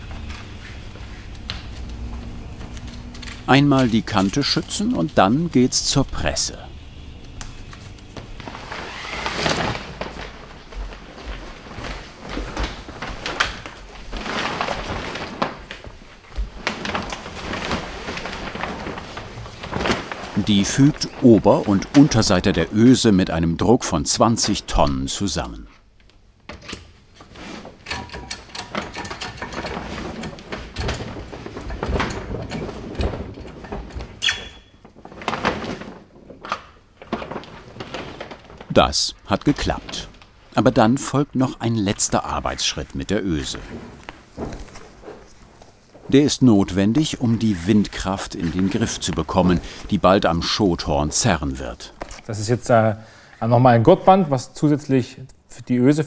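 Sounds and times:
sailcloth rustling and swishing: 8.4 - 22.7, 34.9 - 38.8, 42.4 - 50.0.

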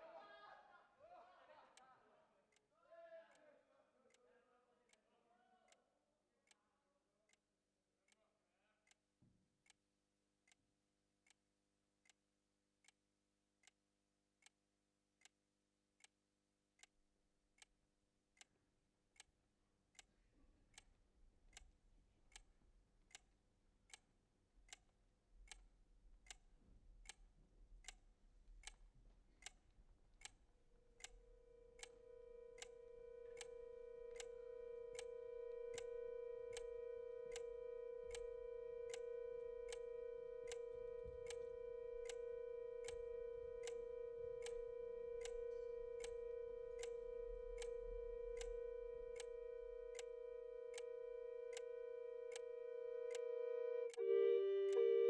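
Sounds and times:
clock-like ticking: 27.8 - 28.0, 30.2 - 54.0
held musical note: 31.2 - 55.0.

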